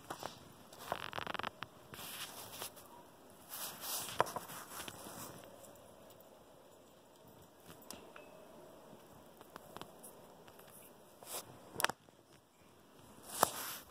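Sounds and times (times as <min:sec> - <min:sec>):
crunching in snow: 0:00.0 - 0:05.6, 0:10.5 - 0:11.5, 0:13.2 - 0:13.9.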